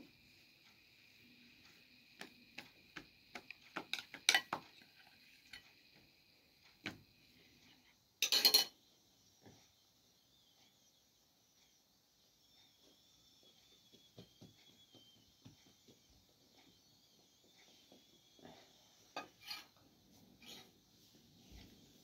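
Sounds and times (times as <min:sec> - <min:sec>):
spoon clatter: 0:08.2 - 0:08.8.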